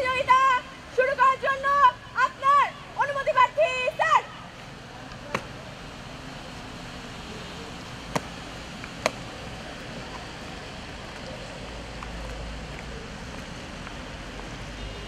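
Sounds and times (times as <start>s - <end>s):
steady outdoor hiss: 0.0s - 15.0s
boots stamping on wet pavement: 8.1s - 9.9s.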